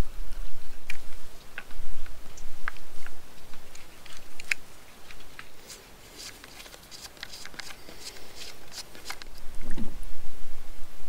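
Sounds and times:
clicks and scrapes of plastic hose: 2.6s - 9.8s.

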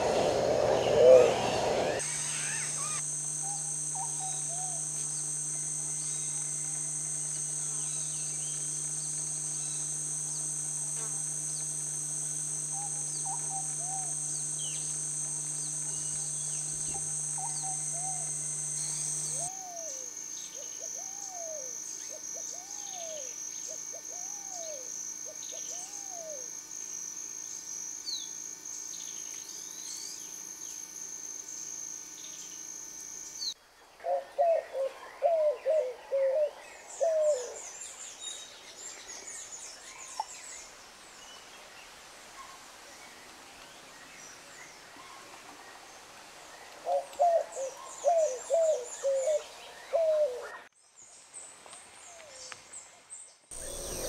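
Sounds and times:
pigeon cooing: 0.0s - 3.0s, 34.0s - 37.6s, 46.9s - 50.6s
dove hooting: 0.0s - 4.9s, 34.0s - 37.6s, 46.8s - 50.6s
high insect drone: 0.0s - 50.6s, 53.5s - 54.0s.

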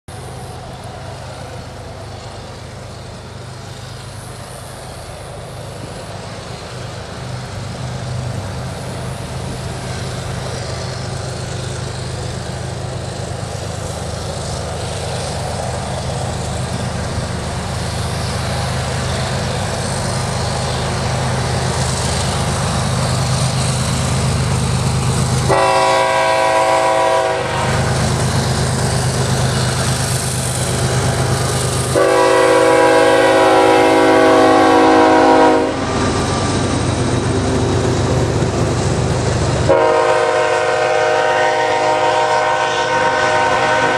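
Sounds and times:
diesel locomotive engine droning: 0.1s - 43.9s
train horn blast: 25.4s - 28.0s, 31.9s - 36.0s, 39.6s - 43.9s.

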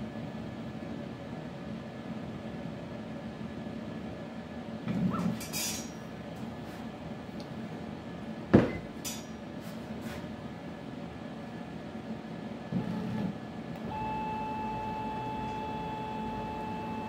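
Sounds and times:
low machine hum: 6.0s - 17.0s.

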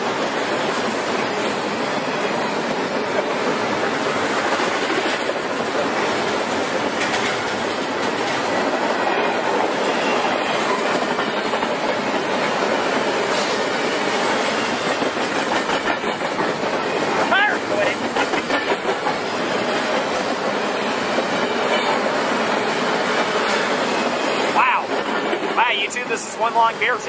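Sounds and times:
freight train wheels on rails: 0.0s - 27.0s.

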